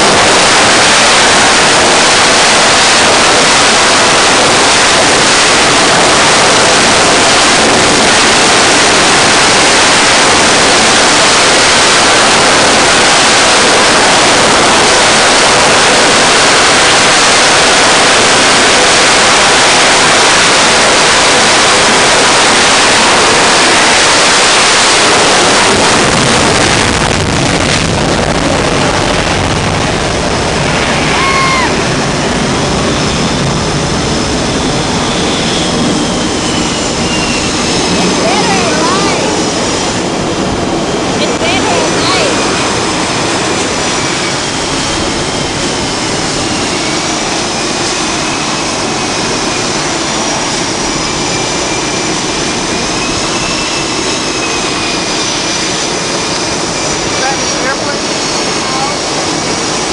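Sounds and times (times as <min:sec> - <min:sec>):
jet engine roar: 0:00.0 - 0:59.9
thin high whine: 0:00.0 - 0:59.9.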